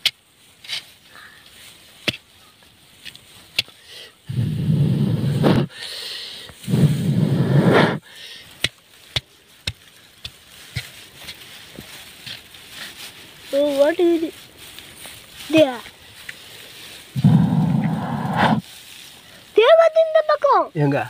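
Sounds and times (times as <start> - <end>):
soft hiss: 0.0 - 21.0
man blowing hard: 4.3 - 6.0, 6.6 - 8.1, 17.2 - 18.6.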